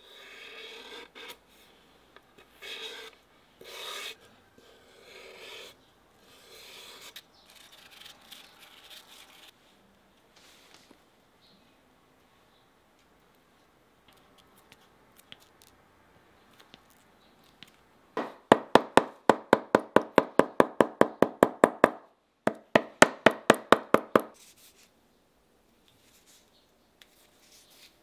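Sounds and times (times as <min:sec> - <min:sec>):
hammer knocking on shoe sole: 0:18.2 - 0:24.4.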